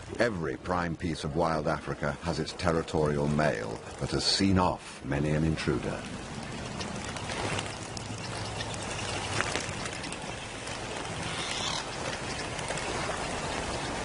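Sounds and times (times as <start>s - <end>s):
shallow water splashing: 0.0s - 14.0s.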